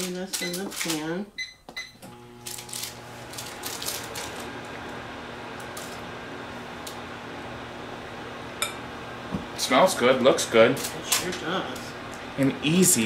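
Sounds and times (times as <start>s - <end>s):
microwave oven humming: 0.0s - 13.0s
keypad beeps: 1.4s - 2.0s.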